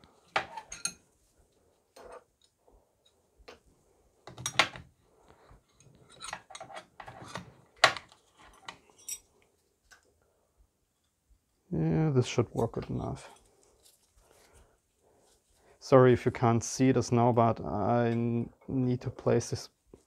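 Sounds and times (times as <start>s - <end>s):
metal hand tools clinking: 8.4s - 9.3s.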